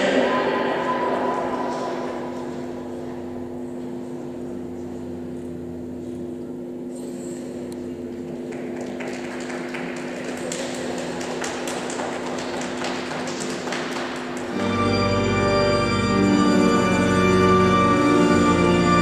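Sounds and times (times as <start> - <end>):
steady low hum: 0.0 - 19.0
sharp claps or taps: 8.5 - 14.6.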